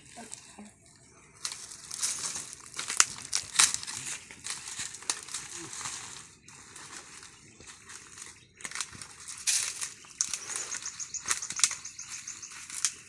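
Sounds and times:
dry crinkling and crackling: 0.0s - 13.0s.

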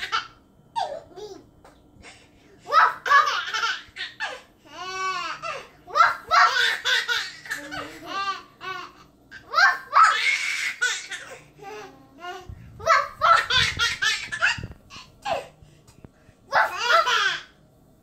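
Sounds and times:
baby laughing: 0.0s - 1.4s, 2.7s - 11.4s, 12.8s - 15.5s
young child's voice: 7.5s - 8.4s.

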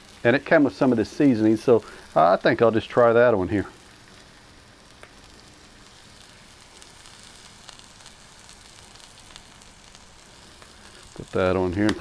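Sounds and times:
meat patty sizzling on a griddle: 0.0s - 12.0s.

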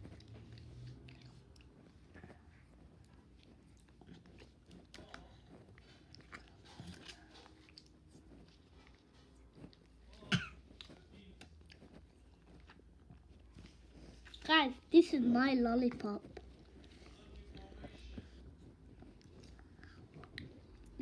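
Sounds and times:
chewing and crunching candy: 0.0s - 21.0s
cough-like burst: 10.2s - 10.6s.

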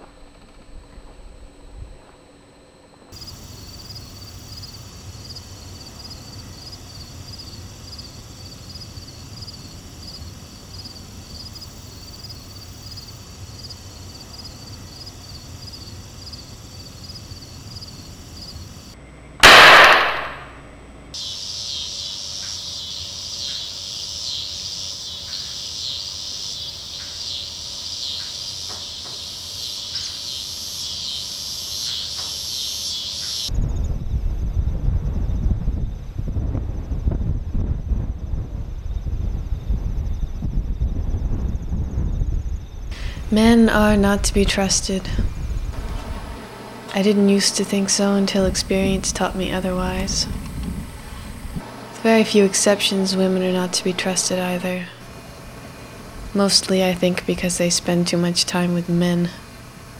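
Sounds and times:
crickets chirping: 0.0s - 59.9s
loud gunshot with falling whine: 19.4s - 20.7s.

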